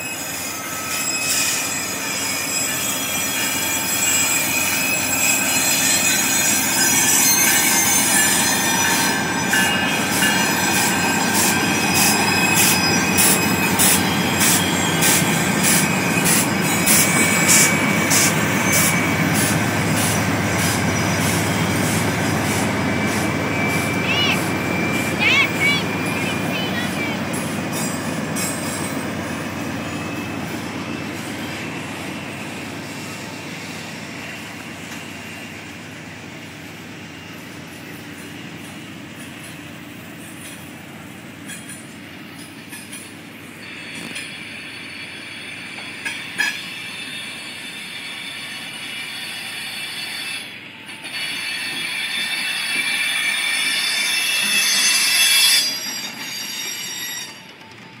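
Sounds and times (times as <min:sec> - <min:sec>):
train wheels squealing on rails: 0:00.0 - 0:58.0
diesel locomotive rumble: 0:02.8 - 0:44.1.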